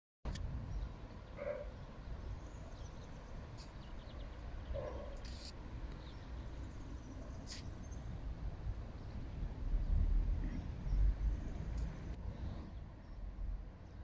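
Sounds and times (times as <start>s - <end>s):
steady low rumble: 5.6s - 14.0s.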